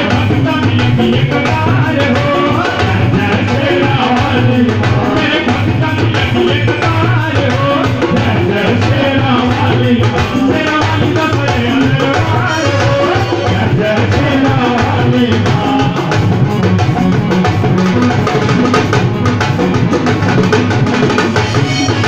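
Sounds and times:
man singing into a microphone: 0.0s - 16.9s
dhol drum: 0.0s - 22.0s.

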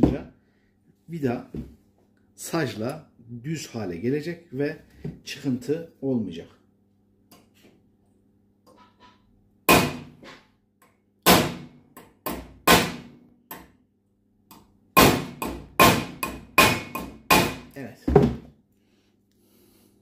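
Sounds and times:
hammer striking metal screw: 14.5s - 17.6s.

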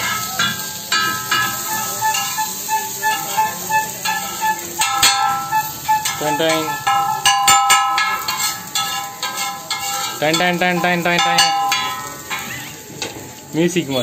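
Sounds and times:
metal spatula scraping iron pan: 0.0s - 13.2s.

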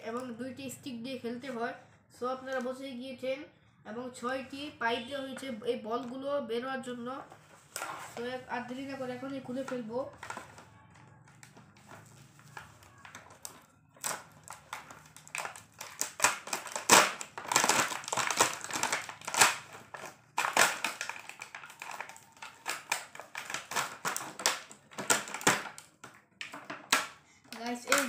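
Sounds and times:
plastic packaging crinkling: 7.4s - 10.7s, 11.3s - 28.0s.

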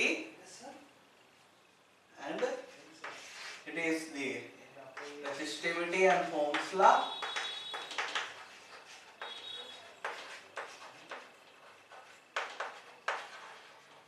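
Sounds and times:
scratchy writing strokes and taps: 3.0s - 3.4s, 4.9s - 5.6s, 6.3s - 14.0s.

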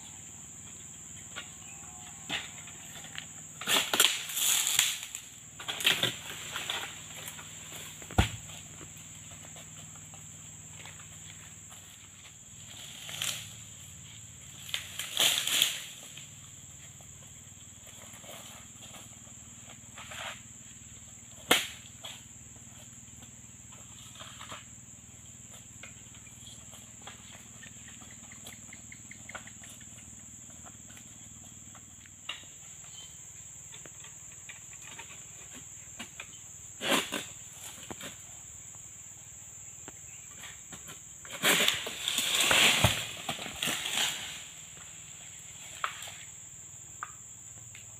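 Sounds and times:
high-pitched insect drone: 0.0s - 41.0s.

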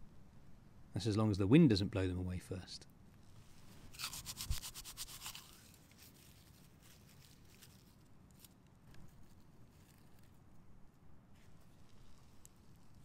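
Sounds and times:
faint rustles and clicks: 3.2s - 13.0s
knife scraping bark: 3.8s - 7.8s.

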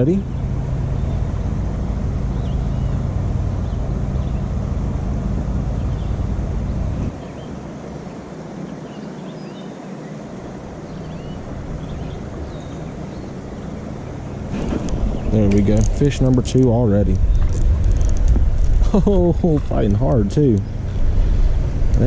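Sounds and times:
low rumble: 0.0s - 7.6s, 10.6s - 22.0s
faint bird chirps: 2.3s - 4.6s, 5.8s - 14.4s.

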